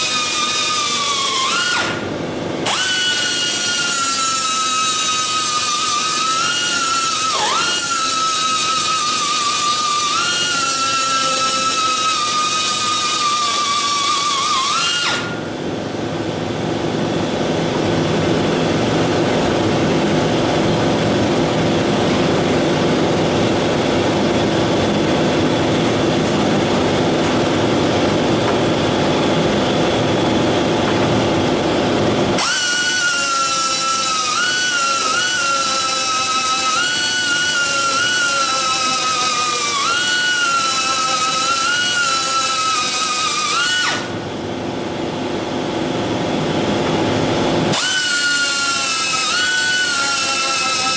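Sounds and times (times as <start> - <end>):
air grinder whining on metal: 0.0 - 15.5, 32.3 - 44.2, 47.6 - 50.9.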